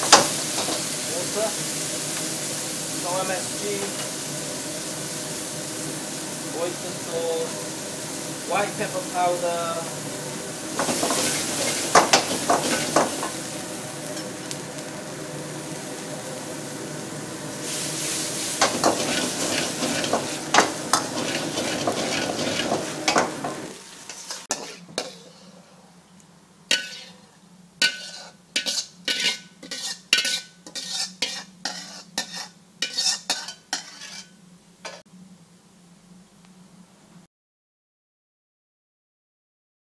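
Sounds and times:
vegetables sizzling in a wok: 0.0 - 37.3
metal ladle scraping a wok: 10.8 - 14.5, 17.6 - 25.8, 26.7 - 35.0.

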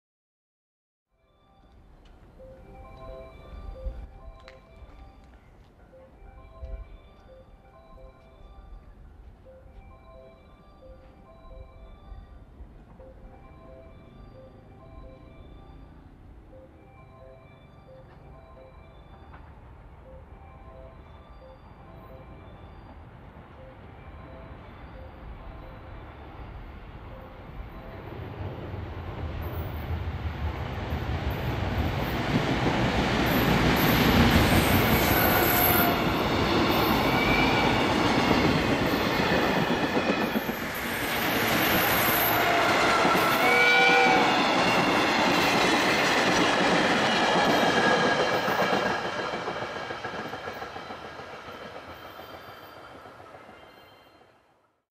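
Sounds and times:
freight train passing: 1.3 - 54.8
high wheel squeals: 33.3 - 54.4.

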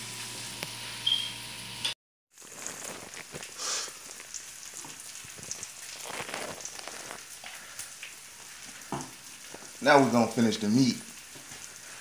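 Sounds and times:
onions sizzling in skillet: 0.0 - 10.3.

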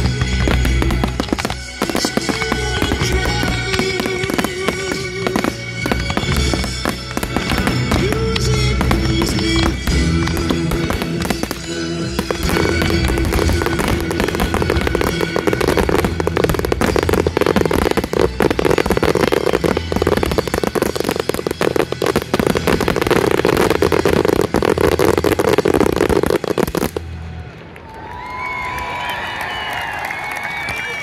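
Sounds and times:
loud music: 0.0 - 27.4
fireworks crackling and banging: 0.0 - 27.8
crowd cheering and whistling: 24.7 - 31.0.

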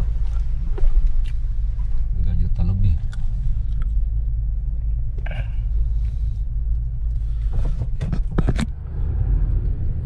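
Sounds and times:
car engine rumble from inside: 0.0 - 10.0.

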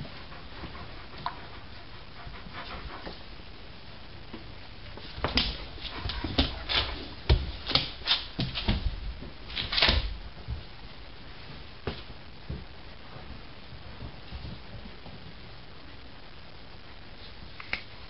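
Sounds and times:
dog panting: 0.0 - 3.3, 5.5 - 7.2.

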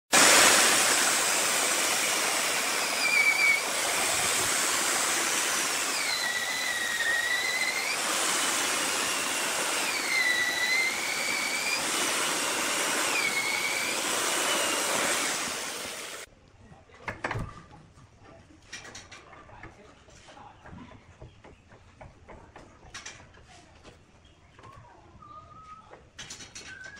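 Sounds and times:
electric chainsaw cutting log: 0.1 - 16.3.

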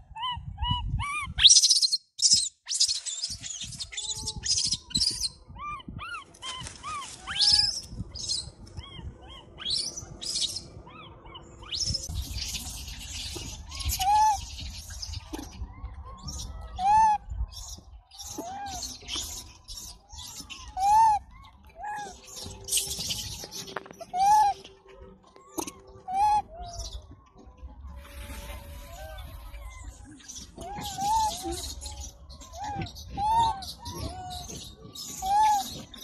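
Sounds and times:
baby monkey crying: 3.4 - 12.6, 13.3 - 14.6, 15.3 - 17.2, 20.1 - 23.1, 24.0 - 24.6, 25.4 - 26.9, 29.6 - 35.8.

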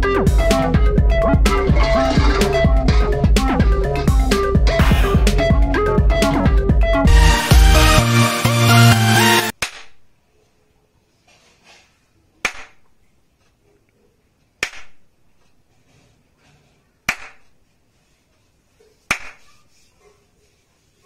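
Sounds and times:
sharp hand claps: 9.6 - 10.0, 12.4 - 12.9, 14.6 - 15.0, 17.1 - 17.5, 19.1 - 19.5.

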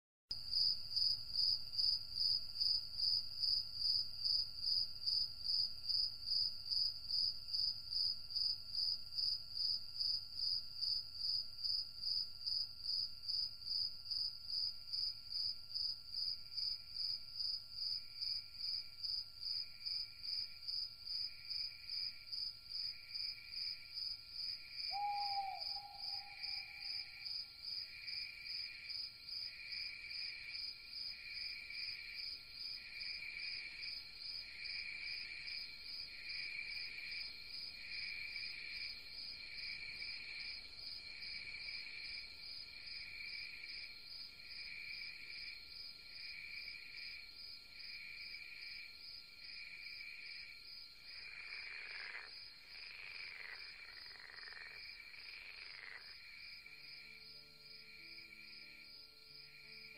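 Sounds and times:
crickets chirping: 0.5 - 59.9
low-pitched insect pulses: 51.1 - 59.9.

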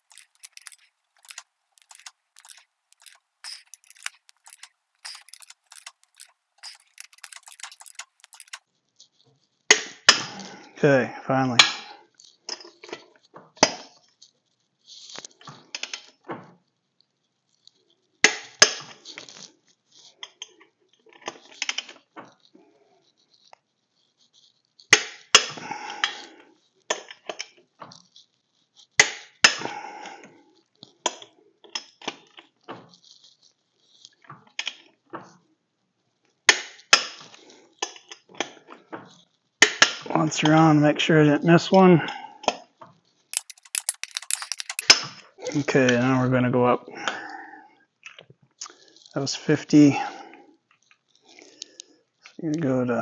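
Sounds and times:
torque wrench ratchet clatter: 0.0 - 8.6, 43.4 - 45.0
torque wrench sharp clicks: 0.0 - 8.6, 43.4 - 45.0.

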